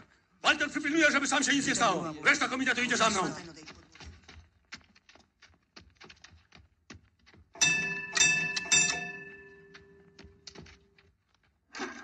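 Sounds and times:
signal bell ringing: 7.6s - 10.4s.

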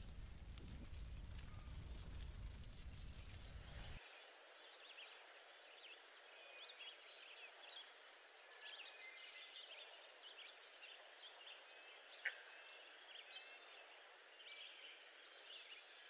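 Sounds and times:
birds chirping: 0.0s - 4.0s.

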